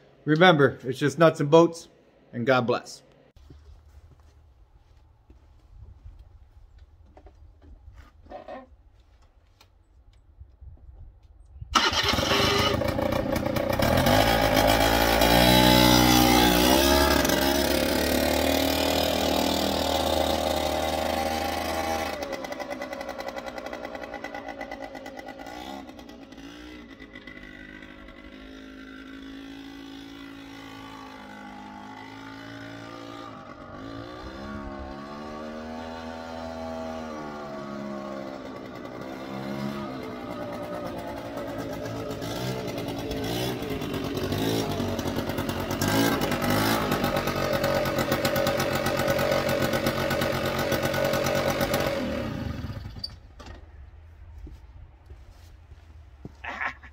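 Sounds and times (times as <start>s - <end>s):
quad engine starting and revving: 11.7s - 53.7s.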